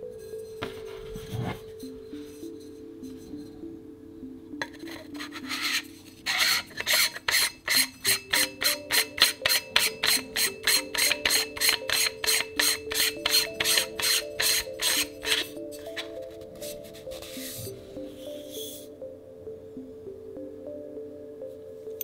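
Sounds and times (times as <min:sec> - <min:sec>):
background music with held tones: 0:00.0 - 0:22.0
metal threads rasping: 0:04.6 - 0:16.2.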